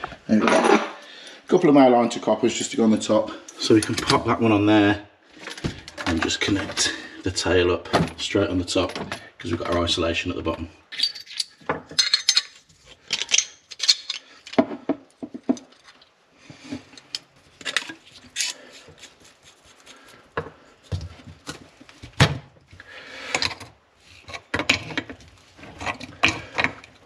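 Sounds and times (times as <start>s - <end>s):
metal pipe clinks and scrapes: 10.9s - 16.2s, 16.8s - 19.9s, 23.3s - 27.0s.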